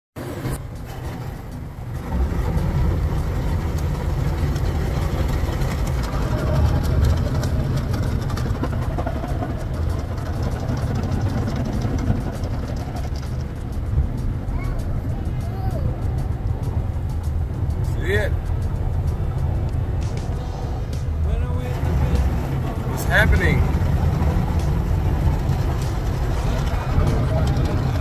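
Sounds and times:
car wash water spraying: 0.2s - 14.5s, 20.6s - 28.0s.

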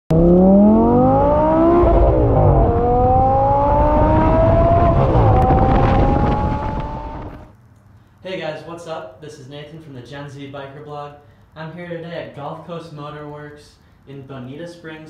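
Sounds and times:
car engine accelerating hard: 0.1s - 7.5s.

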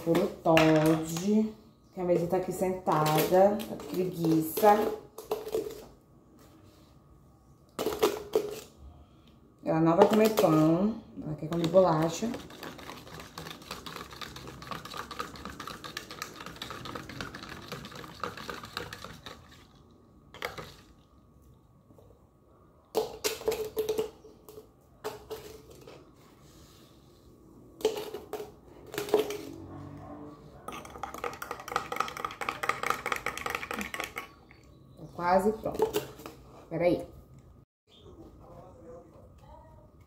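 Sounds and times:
knocks and clinks: 30.7s - 34.3s
spoon stirring clinking in cup: 30.7s - 34.4s.

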